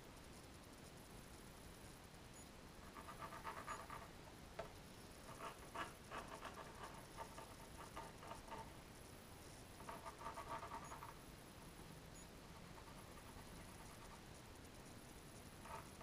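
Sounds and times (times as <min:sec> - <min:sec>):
pencil scratching on paper: 0:02.8 - 0:04.1, 0:05.2 - 0:08.7, 0:09.8 - 0:11.2, 0:12.4 - 0:14.2, 0:15.6 - 0:16.0.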